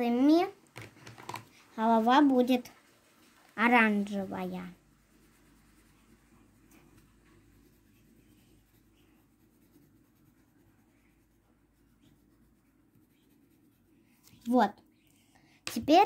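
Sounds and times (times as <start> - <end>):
pencil scratching on paper: 3.2 - 14.6.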